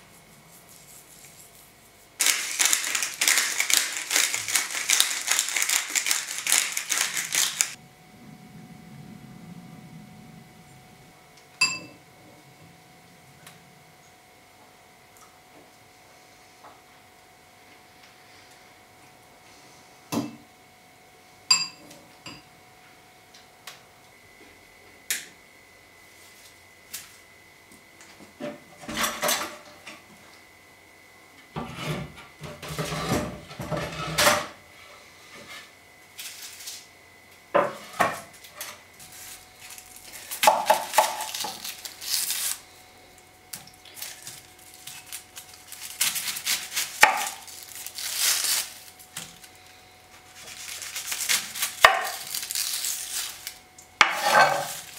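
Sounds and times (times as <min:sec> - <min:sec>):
dishes and utensils clattering: 0:54.0 - 0:54.8.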